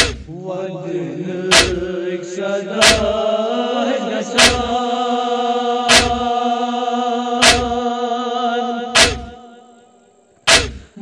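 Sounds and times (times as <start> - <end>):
heavy drum beat: 0.0 - 0.3, 1.5 - 1.8, 2.8 - 3.2, 4.4 - 4.7, 5.9 - 6.2, 7.4 - 7.8
men chanting a lament: 0.0 - 9.5.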